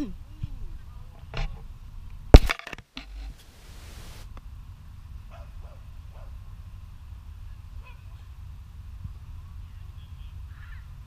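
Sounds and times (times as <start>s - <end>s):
brief hiss: 3.2s - 4.4s.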